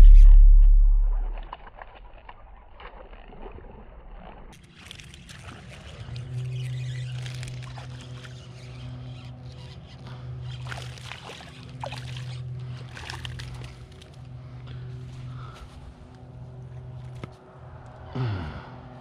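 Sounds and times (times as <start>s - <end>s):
low hum: 0.0s - 19.0s
fish splashing in water: 4.6s - 9.3s, 10.4s - 14.2s.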